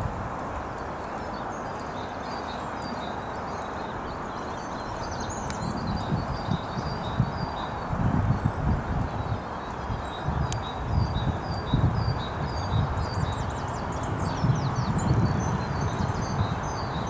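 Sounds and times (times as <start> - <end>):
wind on microphone: 0.0 - 0.8, 5.1 - 17.0
songbirds chirping: 0.0 - 17.0.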